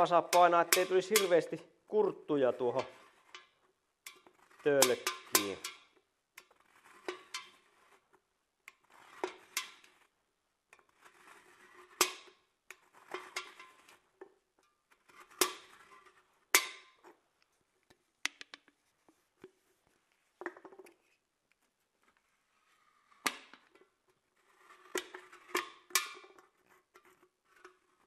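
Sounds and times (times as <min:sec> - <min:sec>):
knife scraping drink can: 0:02.7 - 0:10.2, 0:10.8 - 0:14.2, 0:14.8 - 0:17.0, 0:24.1 - 0:28.0.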